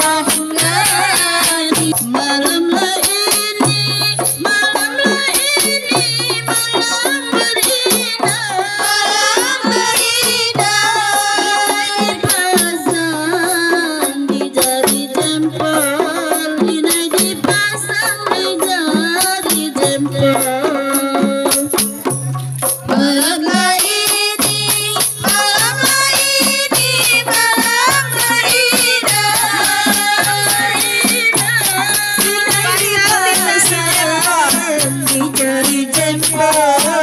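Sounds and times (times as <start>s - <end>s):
amplified singing: 0.0s - 6.0s, 22.9s - 37.0s
frame drums playing a beat: 0.0s - 37.0s.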